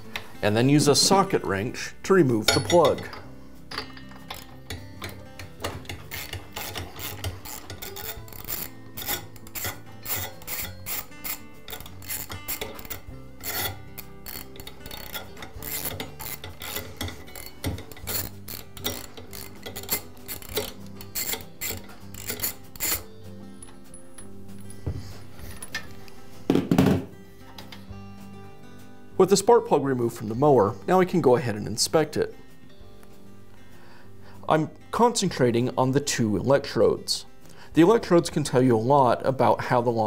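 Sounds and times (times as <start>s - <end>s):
ratchet wrench clicking: 3.8s - 24.3s.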